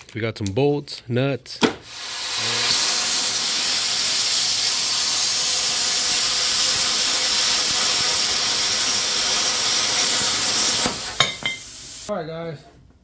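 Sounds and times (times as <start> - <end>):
plasma cutter hissing: 1.8 - 12.1.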